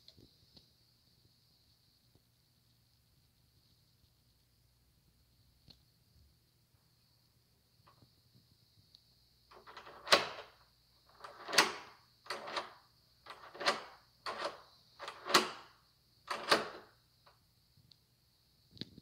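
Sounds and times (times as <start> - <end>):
deadbolt sliding and clacking: 9.5 - 15.7, 16.3 - 16.9.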